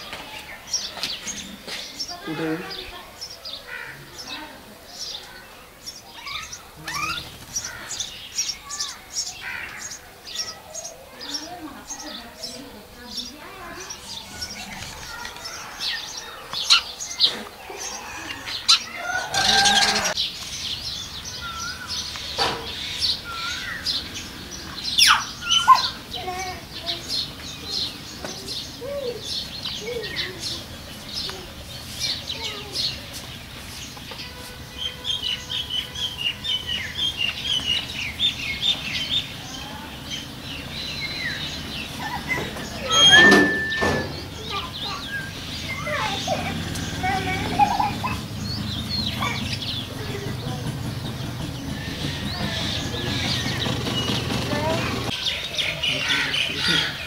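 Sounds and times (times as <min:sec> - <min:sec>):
small birds chirping: 0:00.0 - 0:57.0
lower arching bird calls: 0:13.8 - 0:31.4, 0:35.1 - 0:57.0.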